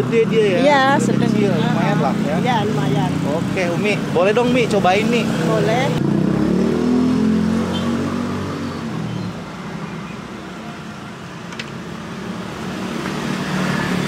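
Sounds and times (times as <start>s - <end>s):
vehicle engine passing: 0.0s - 9.8s
traffic hum: 0.0s - 14.0s.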